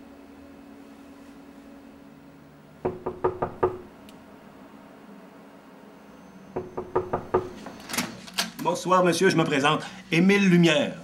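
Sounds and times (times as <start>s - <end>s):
knocking on a door: 2.8s - 3.9s, 6.6s - 7.6s.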